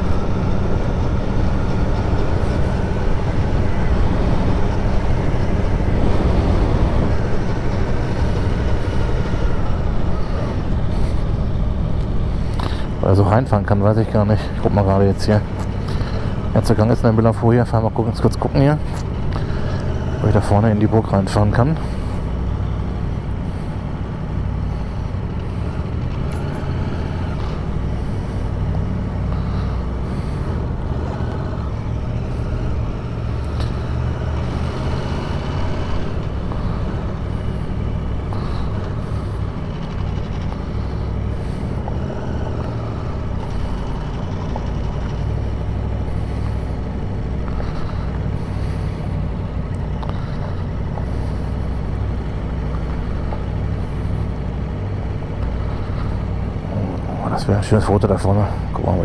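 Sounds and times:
motorcycle engine running low revs: 0.0 - 59.0.

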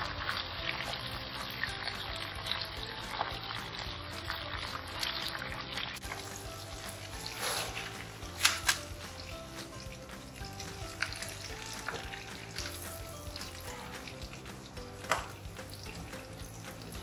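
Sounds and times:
background music: 0.0 - 17.0
hot oil sizzling: 0.0 - 17.0
oil dripping into pan: 8.2 - 17.0.

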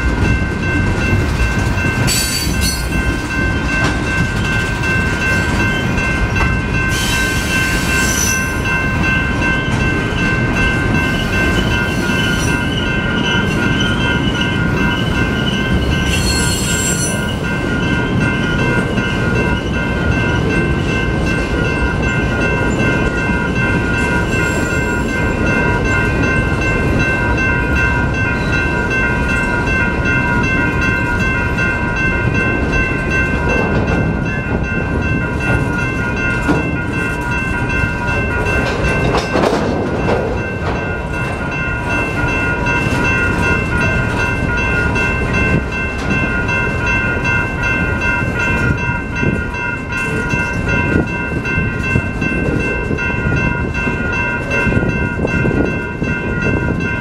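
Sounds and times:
freight train wheels rumbling: 0.0 - 57.0
railroad crossing bell ringing: 0.0 - 57.0
high wheel squeals: 11.2 - 17.4.

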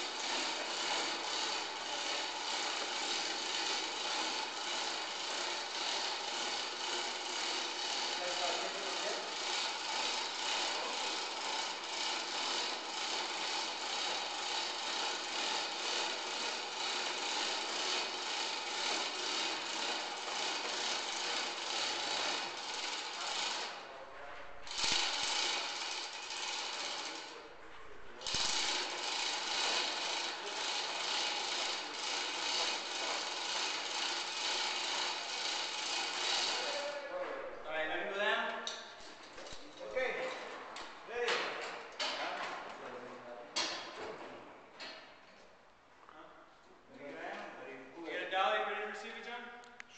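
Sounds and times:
tool rasping on wood: 0.0 - 23.7, 24.7 - 27.3, 28.2 - 36.8.

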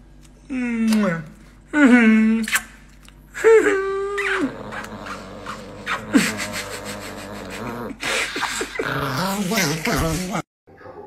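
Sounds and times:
dog snarling and growling: 4.2 - 10.5.

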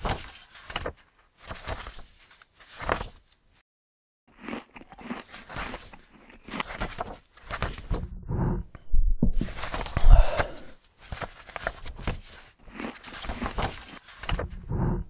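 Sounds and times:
paper pages rustling: 0.0 - 3.4, 6.6 - 8.0, 9.4 - 14.6.

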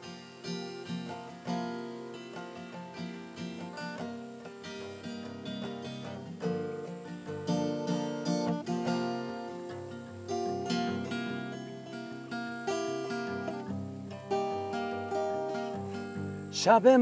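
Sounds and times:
acoustic guitar playing: 0.0 - 17.0.

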